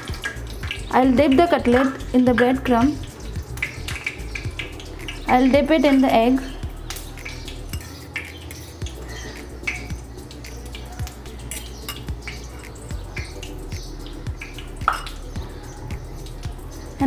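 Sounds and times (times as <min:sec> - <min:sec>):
wet dripping and dabbing: 0:00.0 - 0:17.0
spoon scraping in steel bowl: 0:11.4 - 0:12.8.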